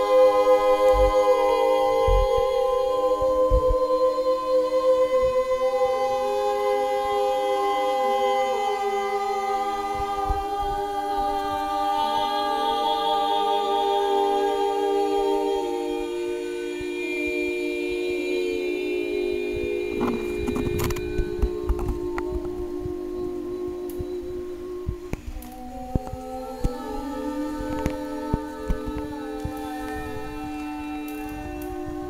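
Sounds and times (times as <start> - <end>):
voices toning held notes: 0.0 - 32.0.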